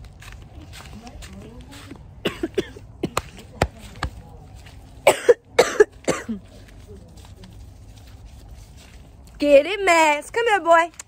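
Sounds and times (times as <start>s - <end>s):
woman coughing: 2.2s - 3.2s, 5.0s - 6.5s.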